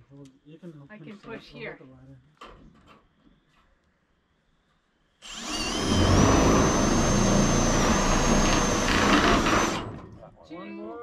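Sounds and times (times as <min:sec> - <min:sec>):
power drill whining into sheet metal: 0:05.2 - 0:10.1.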